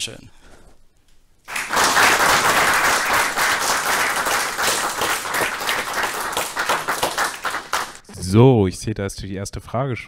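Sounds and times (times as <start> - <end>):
audience applauding: 1.5 - 8.0.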